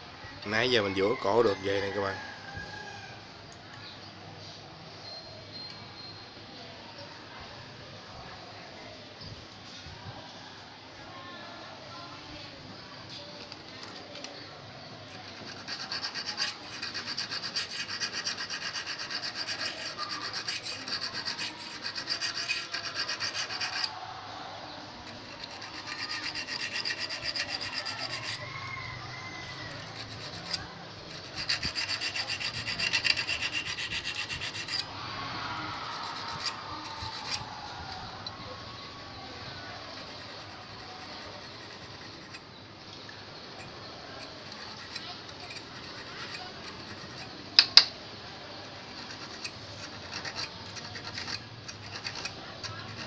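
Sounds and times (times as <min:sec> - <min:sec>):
needle file rasping on steel: 0:15.1 - 0:23.9, 0:25.0 - 0:28.5, 0:29.5 - 0:34.9, 0:35.7 - 0:37.5, 0:39.9 - 0:42.4, 0:43.6 - 0:47.9, 0:48.7 - 0:53.0.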